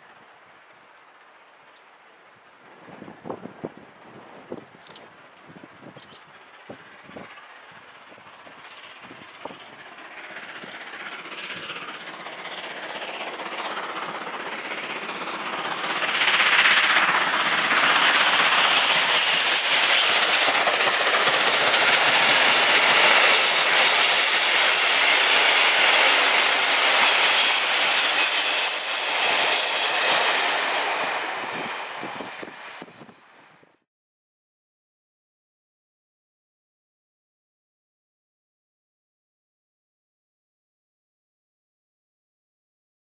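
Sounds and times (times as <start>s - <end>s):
steam locomotive passing: 0.0s - 33.8s.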